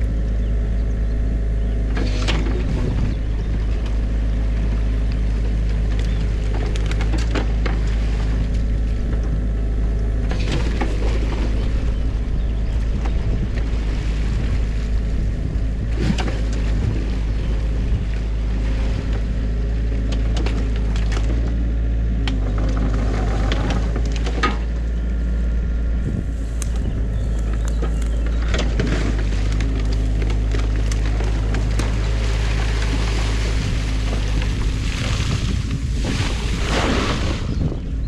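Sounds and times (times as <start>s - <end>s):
excavator diesel engine running: 0.0s - 36.6s
sticks and branches cracking: 5.1s - 7.9s, 26.5s - 33.3s.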